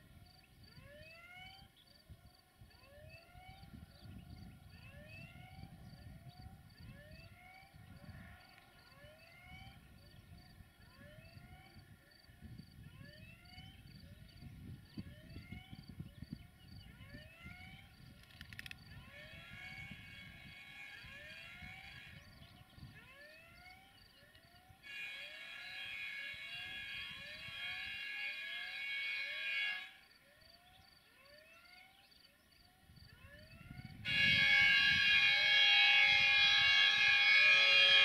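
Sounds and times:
locomotive horn blasts: 19.1 - 23.8, 24.6 - 30.0, 34.0 - 38.0.

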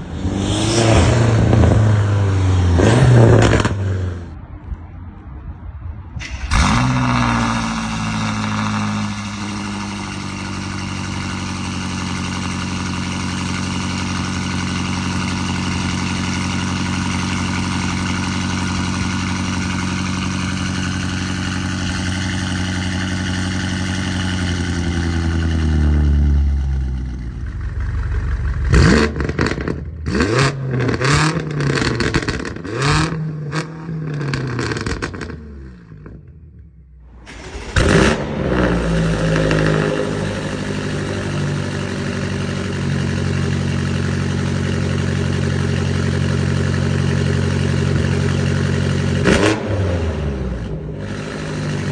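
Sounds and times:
car engine revving: 0.0 - 4.4, 6.2 - 36.2, 37.0 - 51.9
car engine starting and idling: 6.1 - 51.9.

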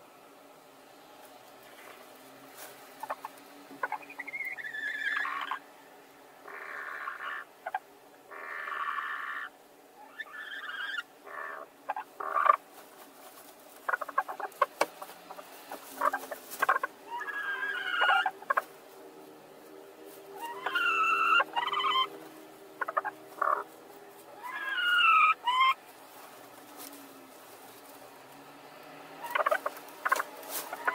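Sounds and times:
clicks and rustling in straw: 1.1 - 5.6, 11.9 - 30.9
hens calling: 1.6 - 30.9.

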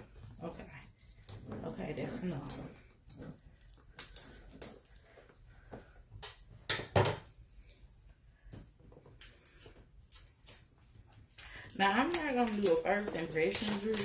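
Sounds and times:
shrink wrap crinkling: 0.4 - 5.2, 9.1 - 14.0.

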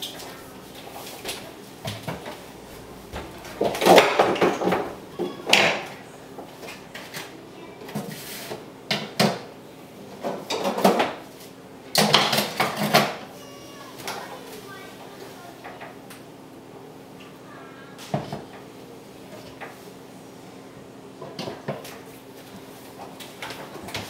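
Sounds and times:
clatters of objects: 3.2 - 9.5, 10.2 - 11.2.

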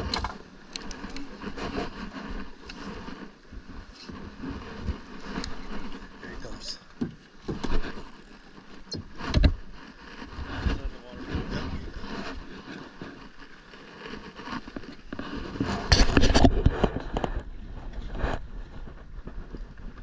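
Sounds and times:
fishing rod and reel knocking: 0.0 - 4.2.

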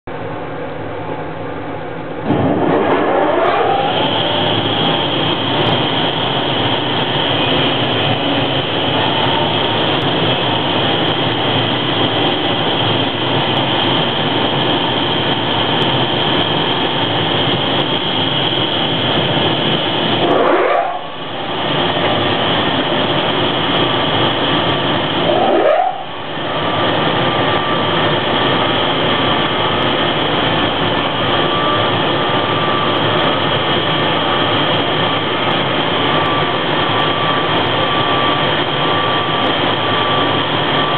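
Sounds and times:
machinery whirring: 2.0 - 40.9
upward sweeping tone: 2.2 - 5.7, 20.1 - 22.3, 25.1 - 26.9.

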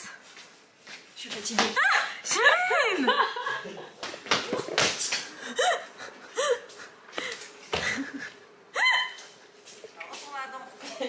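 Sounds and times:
wheezy breaths: 5.3 - 8.3
woman laughing breathlessly: 5.3 - 9.3.

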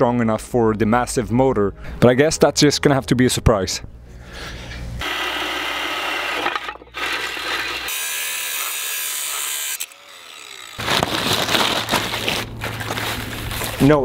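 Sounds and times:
angle grinder cutting metal: 5.0 - 11.1.

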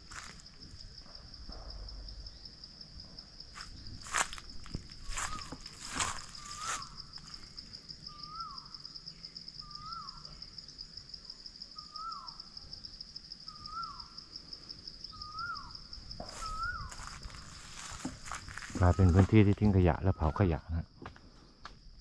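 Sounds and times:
insect buzzing: 2.1 - 19.4
bird calling: 15.2 - 18.1.

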